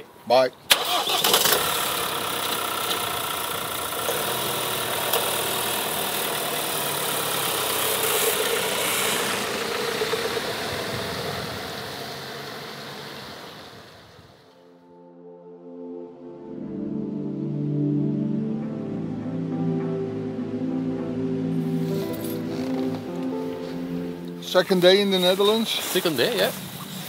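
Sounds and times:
van engine pulling away: 0.7s - 14.5s.

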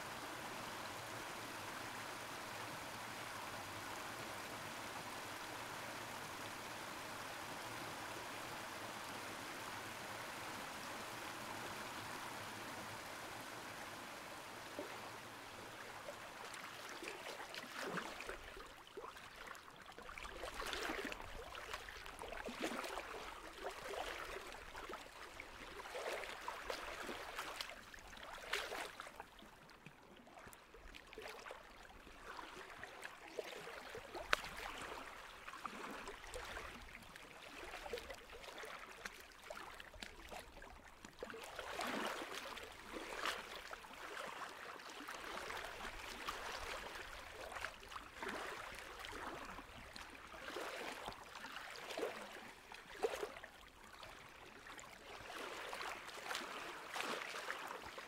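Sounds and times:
water flowing and gurgling: 9.0s - 58.0s.

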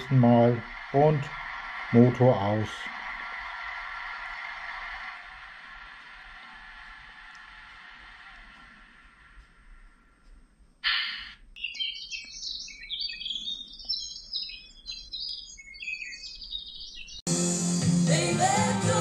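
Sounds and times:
hissing noise: 0.0s - 11.4s
small birds chirping: 10.8s - 17.3s
loud music: 17.3s - 19.0s.

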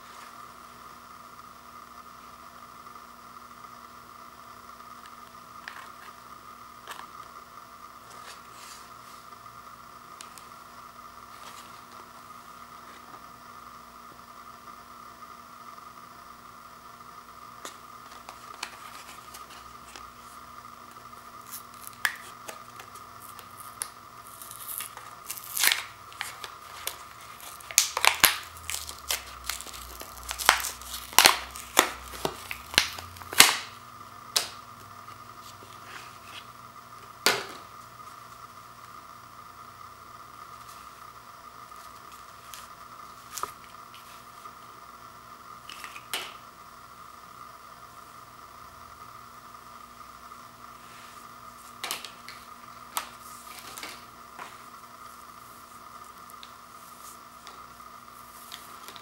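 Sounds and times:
blister pack tearing and crinkling: 21.4s - 33.8s.

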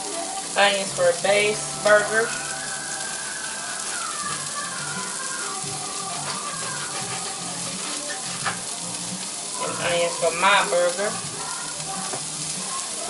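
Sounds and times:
patties sizzling in a pan: 0.0s - 13.0s.

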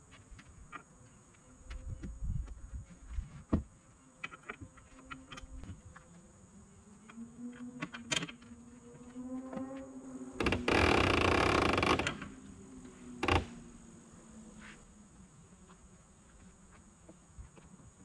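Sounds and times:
insect buzzing: 8.6s - 12.3s, 13.2s - 13.7s.

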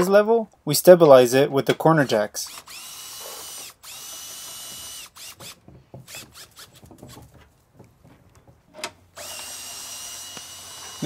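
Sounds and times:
cordless drill running: 2.4s - 7.2s, 9.2s - 11.0s.

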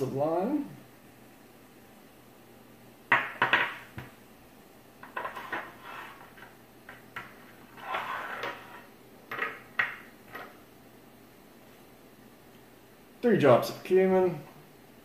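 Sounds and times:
bottles scraping on table: 5.0s - 6.5s, 7.5s - 9.6s.

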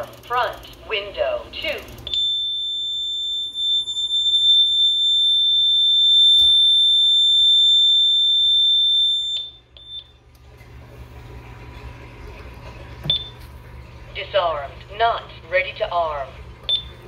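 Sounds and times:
alarm siren: 2.1s - 10.0s.

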